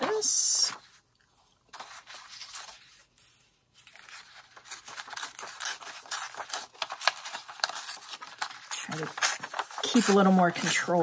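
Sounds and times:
paper rustling: 0.0s - 11.0s
paper tearing slowly: 1.7s - 11.0s.

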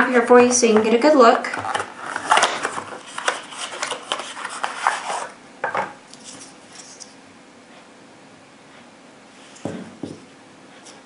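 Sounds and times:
cardboard scraping and rubbing: 1.6s - 5.4s.

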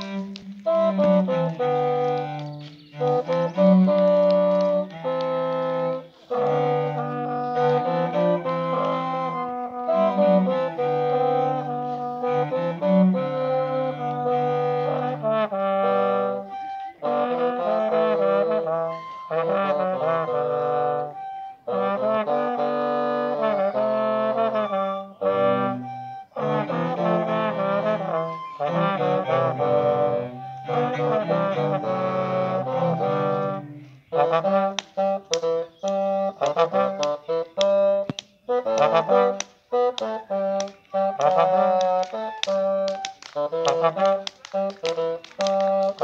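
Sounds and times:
brass woodwinds and cello ensemble: 0.0s - 46.0s
sharp clicks: 0.3s - 5.6s, 34.8s - 46.0s.

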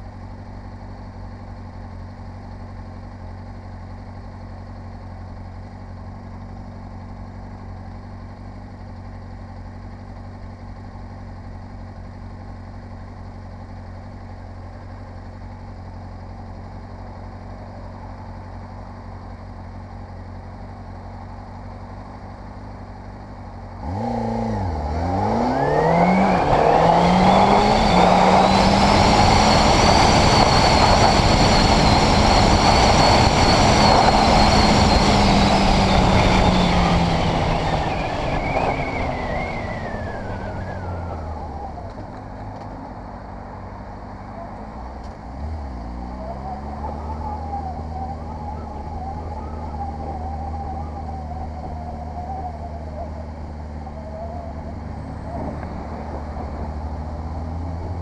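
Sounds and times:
motorcycle engine revving: 23.7s - 43.0s, 44.3s - 58.0s.

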